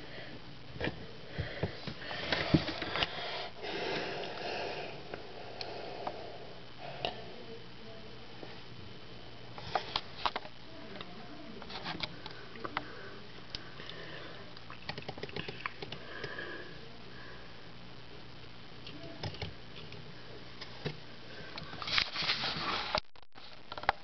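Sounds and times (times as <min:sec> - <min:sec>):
person sniffing and breathing: 0:01.3 - 0:07.0.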